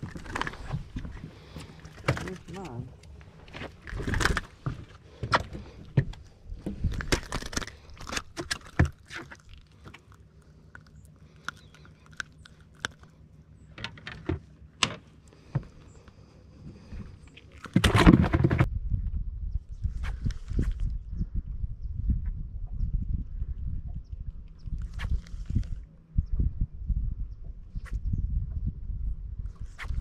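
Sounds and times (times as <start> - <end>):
fish handling clicks and knocks: 0.0 - 13.1.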